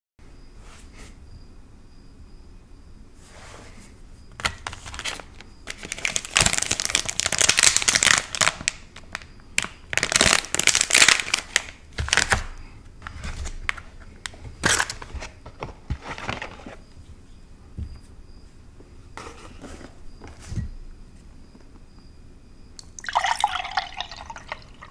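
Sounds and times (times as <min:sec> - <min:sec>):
plastic wrapper crinkling: 0:04.4 - 0:16.7.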